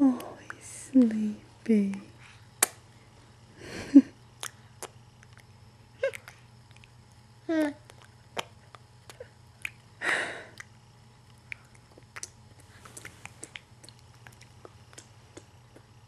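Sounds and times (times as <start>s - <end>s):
baby lip smacks: 2.6s - 2.8s, 4.4s - 5.4s, 7.8s - 9.8s, 11.4s - 15.9s.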